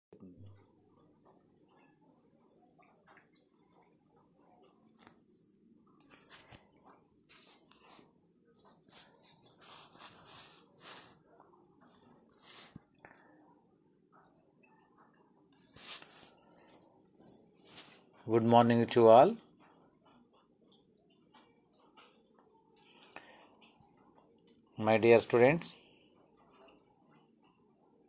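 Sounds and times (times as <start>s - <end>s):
cricket chirping trill: 0.2s - 28.0s
rustling: 6.0s - 8.1s, 8.7s - 11.3s, 12.3s - 12.8s, 15.6s - 16.7s, 17.6s - 18.0s.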